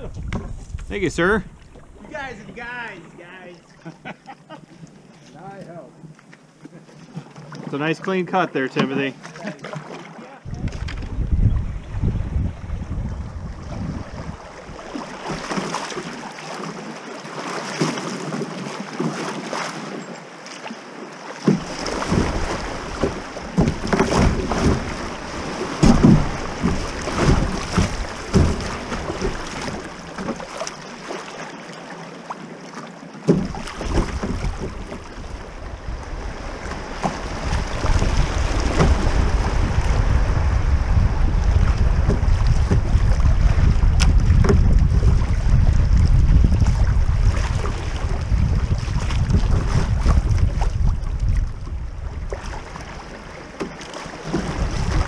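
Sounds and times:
wind buffeting microphone: 0:00.0 - 0:03.0, 0:10.4 - 0:15.5, 0:33.4 - 0:53.0, 0:54.3 - 0:55.0
river current rushing and splashing: 0:00.0 - 0:55.0.

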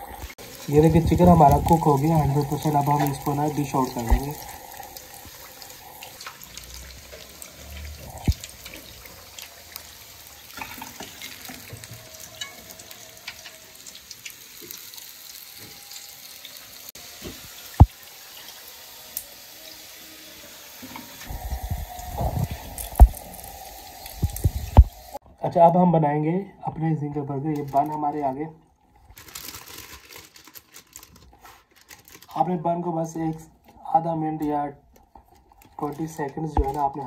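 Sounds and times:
chicken deep-frying in oil: 0:00.0 - 0:25.2, 0:35.7 - 0:37.0.

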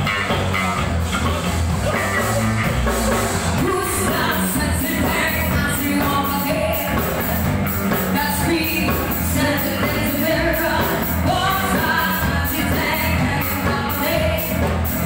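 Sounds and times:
live pop-rock band playing: 0:00.0 - 0:15.0.

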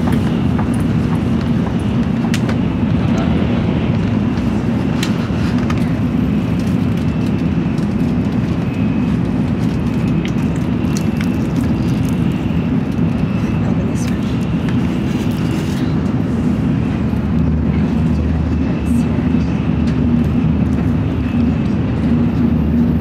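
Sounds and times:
train low rumble: 0:00.0 - 0:23.0.

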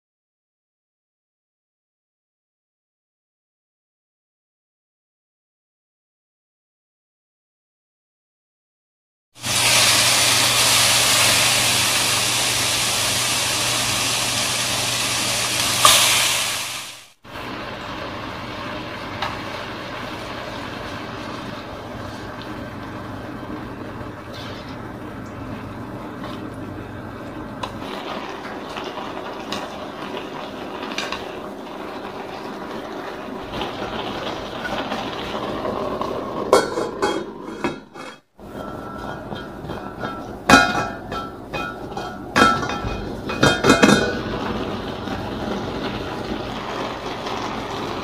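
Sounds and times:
meat and vegetables sizzling in a pan: 0:09.4 - 0:24.9, 0:27.6 - 0:36.9, 0:38.4 - 0:48.0
metal lid clanking on a pan: 0:36.5 - 0:44.2.

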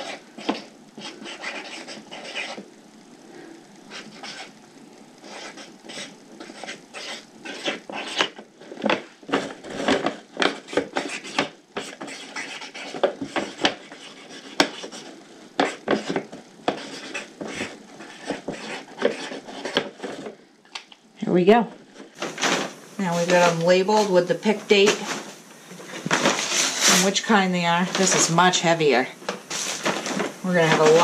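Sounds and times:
marker scratching on paper bag: 0:00.0 - 0:02.6, 0:03.9 - 0:04.5, 0:05.2 - 0:08.4, 0:10.5 - 0:19.8, 0:26.1 - 0:31.0.

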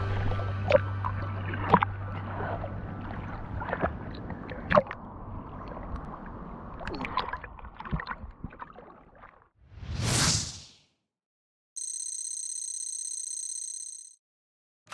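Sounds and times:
water splashing and lapping: 0:00.0 - 0:09.6.

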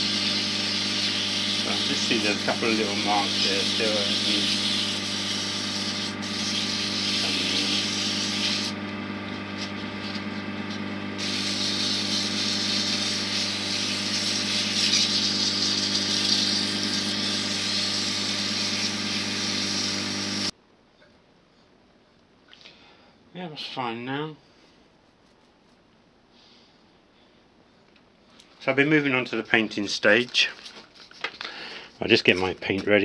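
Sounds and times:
sandpaper hissing on spinning wood: 0:00.0 - 0:20.5
wood lathe motor hum: 0:00.0 - 0:20.5.

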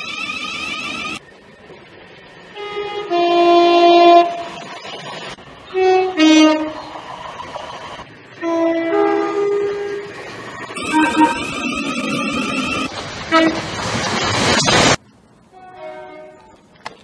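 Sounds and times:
two-tone train horn: 0:02.6 - 0:04.5, 0:05.7 - 0:06.9, 0:08.3 - 0:10.1, 0:10.8 - 0:11.6, 0:13.3 - 0:13.6, 0:15.5 - 0:16.6.

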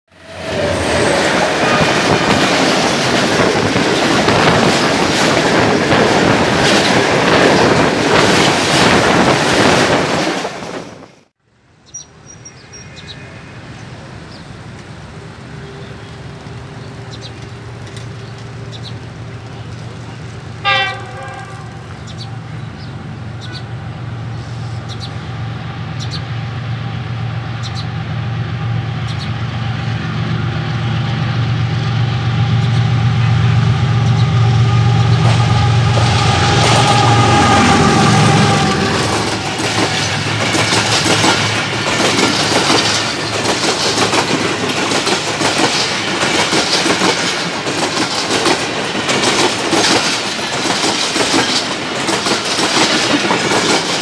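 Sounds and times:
train rattling and rushing: 0:00.1 - 0:11.4, 0:12.0 - 0:54.0
locomotive engine rumble: 0:13.3 - 0:54.0
sharp rail clicks: 0:17.2 - 0:19.1, 0:35.0 - 0:54.0
locomotive horn blast: 0:20.6 - 0:22.1, 0:32.2 - 0:40.2.

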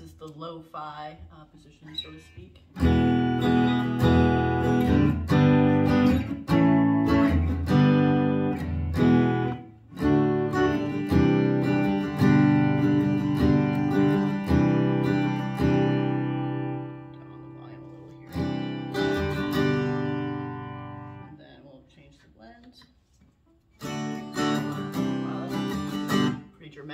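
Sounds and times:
electric guitar strummed chords: 0:02.7 - 0:21.3.

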